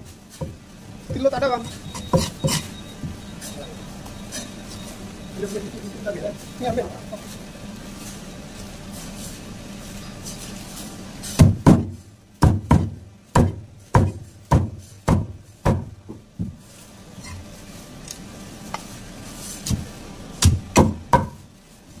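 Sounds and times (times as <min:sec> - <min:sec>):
knife chopping fish on wooden block: 0:11.4 - 0:15.9.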